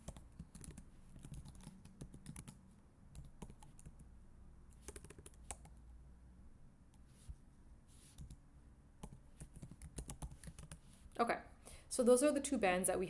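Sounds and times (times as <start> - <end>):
faint typing on keyboard: 0.0 - 4.1, 4.7 - 5.8, 8.0 - 8.4, 9.0 - 11.2.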